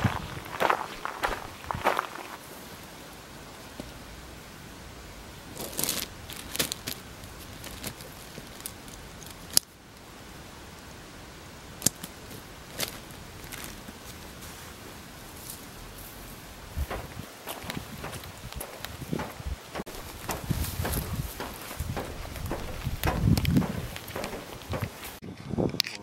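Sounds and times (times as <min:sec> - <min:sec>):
outdoor hiss: 0:00.0 - 0:25.2
gear rustling: 0:15.4 - 0:25.2
sharp clicks: 0:16.9 - 0:25.2.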